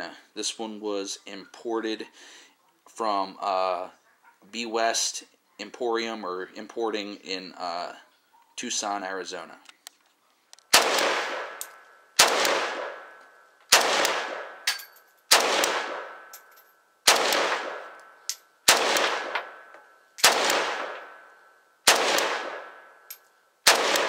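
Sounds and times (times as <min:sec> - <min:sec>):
rifle single shots echoing: 0:10.7 - 0:24.0.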